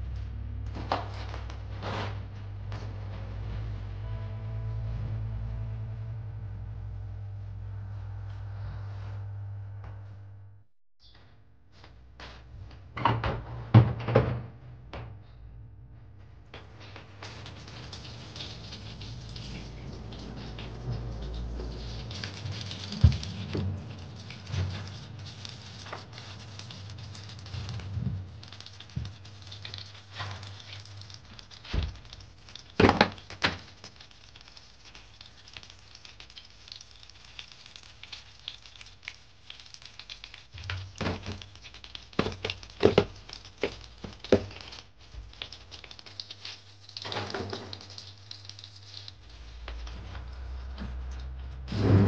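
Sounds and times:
knocks and clunks: 12.3s - 17.2s
clothes and plastic rustling: 16.6s - 51.7s.

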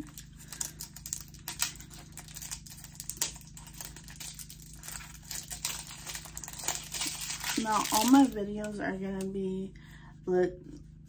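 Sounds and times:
packaging clicks: 0.0s - 8.4s
packaging crinkling: 0.0s - 8.8s.

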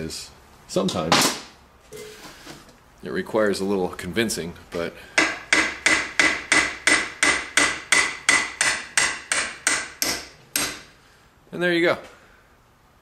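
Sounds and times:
hammer tapping metal: 5.2s - 10.9s.

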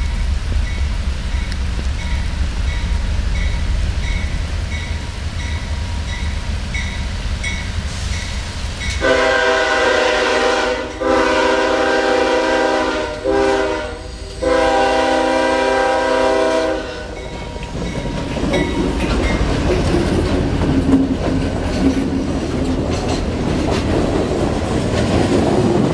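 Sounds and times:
diesel locomotive rumble: 0.0s - 25.9s
train air horn blasts: 9.0s - 17.6s
train wheels clicking over rail joints: 17.2s - 25.9s.

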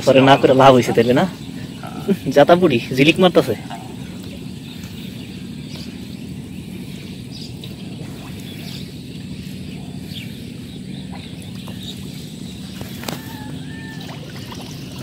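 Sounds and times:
low outdoor rumble: 0.0s - 15.0s
water splashing and dripping: 12.8s - 15.0s.

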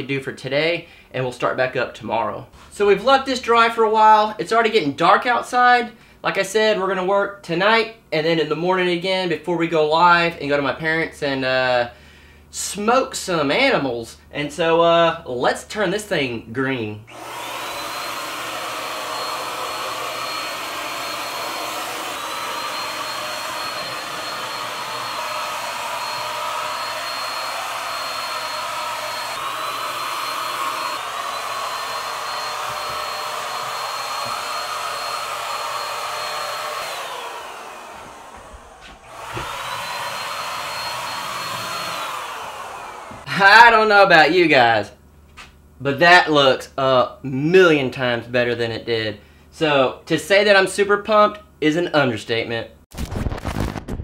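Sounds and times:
electric paint sprayer whine: 17.1s - 43.3s.

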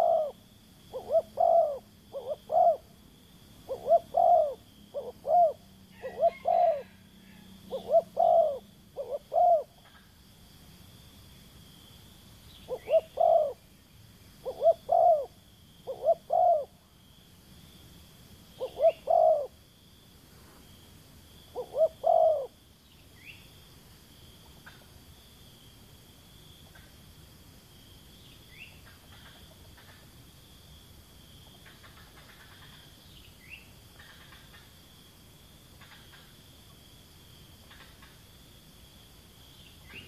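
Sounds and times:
dove cooing: 0.0s - 2.9s, 3.6s - 9.9s, 12.7s - 13.6s, 14.4s - 16.8s, 18.6s - 19.6s, 21.5s - 22.6s
high insect drone: 0.0s - 40.0s.

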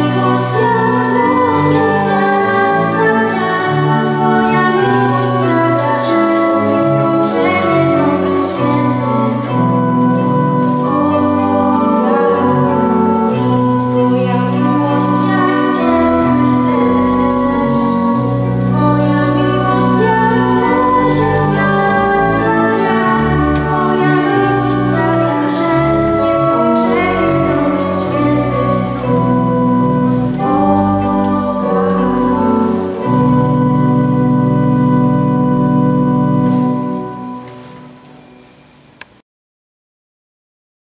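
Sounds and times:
woman singing slow song: 0.0s - 34.6s
organ holding low chords: 0.0s - 39.2s.

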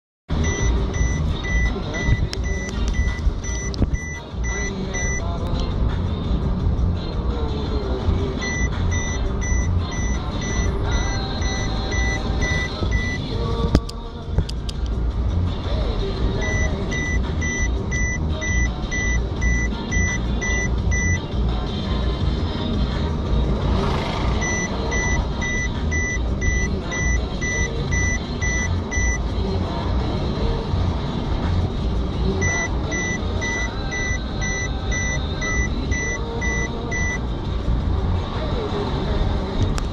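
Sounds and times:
car cabin road rumble: 0.3s - 39.9s
repeating electronic beep: 0.4s - 5.2s, 8.4s - 13.2s, 16.4s - 21.2s, 24.4s - 29.2s, 32.4s - 37.2s
sharp clicks: 13.7s - 15.0s.

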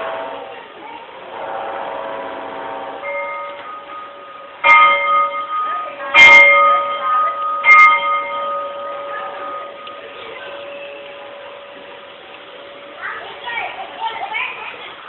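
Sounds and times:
steady ringing tone: 1.9s - 13.5s
loud bell strikes: 3.0s - 12.0s.

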